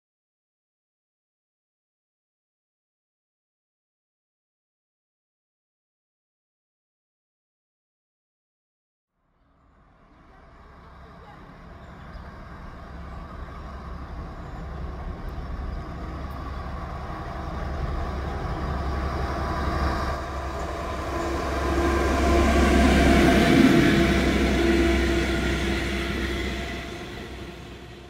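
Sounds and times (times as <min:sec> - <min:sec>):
diesel locomotive engine: 0:09.5 - 0:28.0
coaches rolling on rails: 0:10.1 - 0:28.0.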